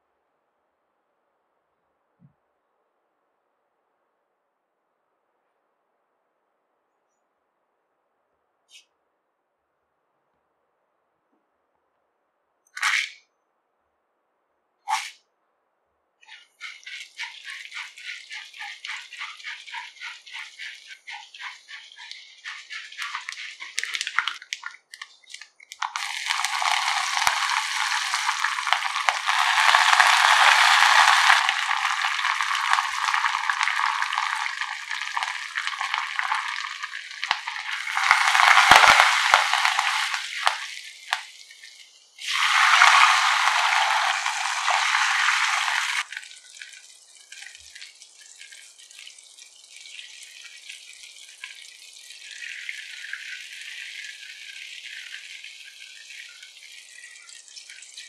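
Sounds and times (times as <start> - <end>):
oil crackling and sizzling: 16.3 - 58.0
loud hiss of water on hot oil: 26.0 - 46.0.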